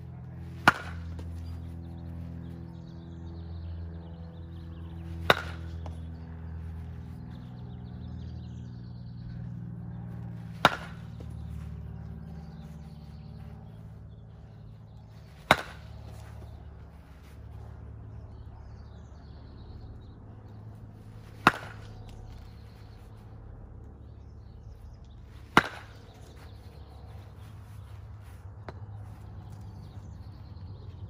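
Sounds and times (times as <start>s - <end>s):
bat hitting baseballs: 0.0s - 2.6s, 4.5s - 8.0s, 10.2s - 19.0s, 20.5s - 23.1s, 25.2s - 27.8s.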